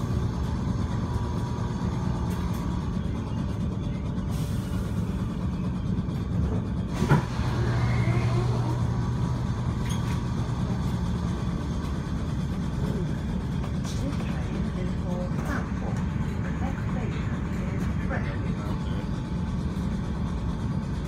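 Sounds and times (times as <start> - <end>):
electric train running rumble: 0.0 - 21.0
low hum: 0.0 - 21.0.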